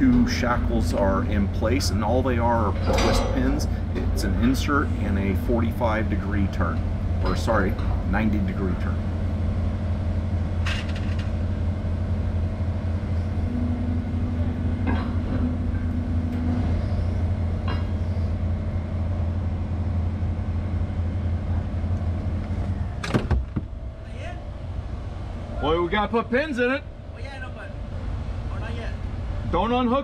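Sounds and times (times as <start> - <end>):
diesel engine running: 0.0 - 30.0
higher hum: 0.0 - 30.0
knocks: 23.0 - 23.7.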